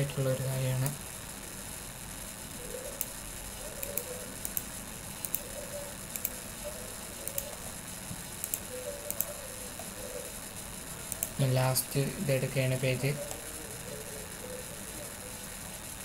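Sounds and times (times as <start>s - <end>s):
background hiss: 0.0s - 16.0s
computer mouse clicks: 3.0s - 3.2s, 3.8s - 5.5s, 6.1s - 6.4s, 7.2s - 7.6s, 8.4s - 9.9s, 11.1s - 11.4s.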